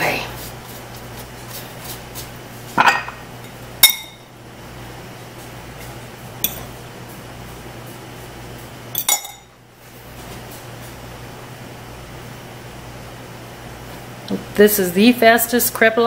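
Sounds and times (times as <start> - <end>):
low steady hum: 0.0 - 16.0
fork clinking on ceramic bowl: 2.8 - 4.2, 6.4 - 6.7, 9.0 - 9.5.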